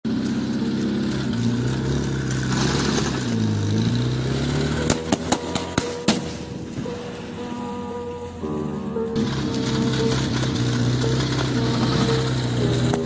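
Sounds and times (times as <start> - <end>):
vehicle engine running: 0.0 - 7.4, 8.2 - 13.0
sharp pyrotechnic bangs: 4.8 - 6.8.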